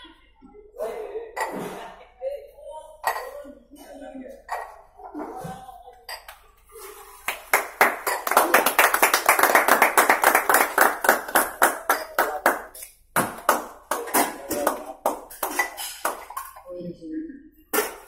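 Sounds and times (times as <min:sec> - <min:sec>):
group clapping fast: 0:06.3 - 0:16.4.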